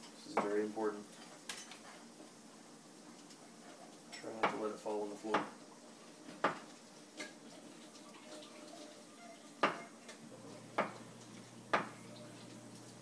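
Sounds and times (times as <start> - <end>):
low steady hum: 7.0 - 13.0
knife knocking on cutting board: 9.6 - 9.8.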